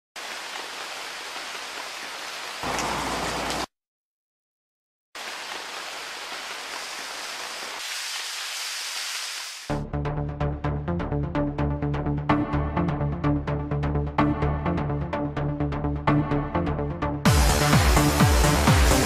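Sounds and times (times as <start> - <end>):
heavy rain on car and pavement: 0.2 - 3.7, 5.2 - 9.7.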